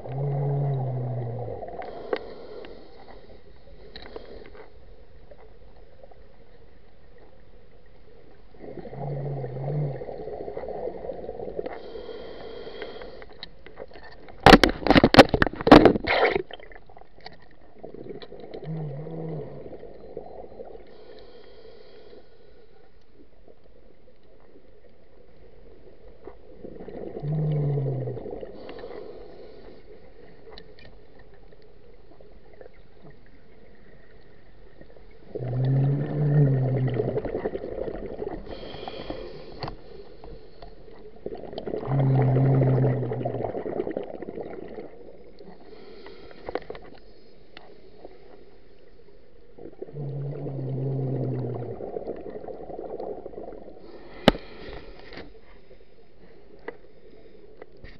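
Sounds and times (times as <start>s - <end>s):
diver exhaling bubbles: 8.6s - 11.9s, 17.8s - 20.8s, 26.6s - 29.3s, 35.2s - 39.6s, 41.2s - 45.2s, 49.6s - 54.9s.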